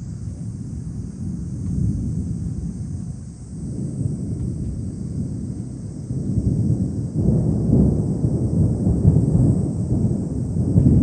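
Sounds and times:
thunder rumbling: 0.0 - 11.0.

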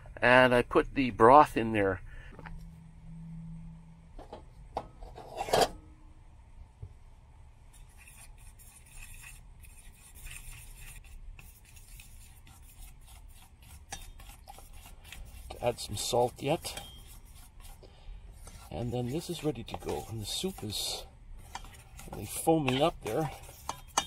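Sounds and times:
fork scraping steel pot: 5.0 - 5.8, 7.9 - 17.8, 18.4 - 24.0.

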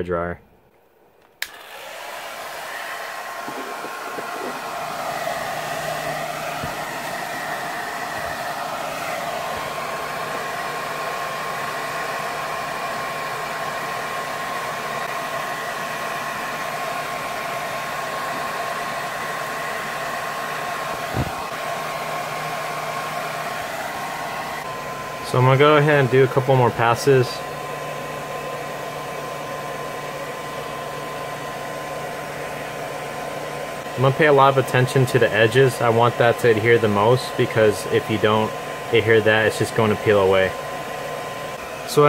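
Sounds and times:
hair dryer switch click: 1.2 - 2.0
hair dryer running: 1.2 - 42.0.

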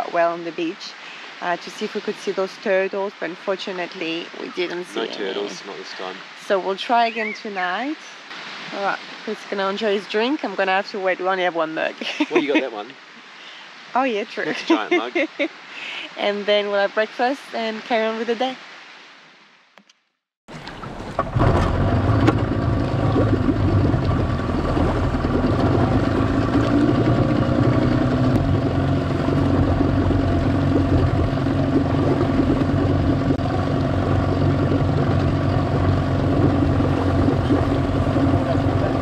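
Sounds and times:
outboard motor running: 3.8 - 7.4, 12.3 - 12.8, 20.6 - 39.0.

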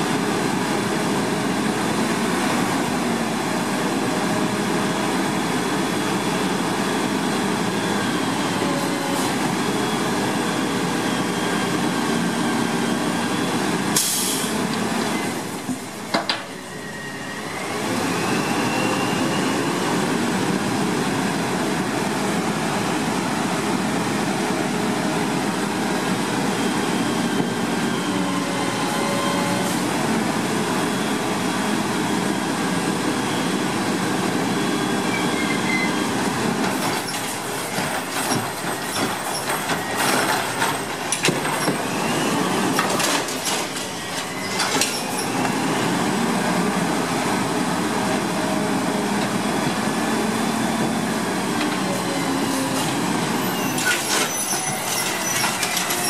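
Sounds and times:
garbage truck hydraulics running: 34.7 - 46.1, 48.7 - 56.0
recyclables clattering into hopper: 36.8 - 41.9, 42.7 - 45.0.

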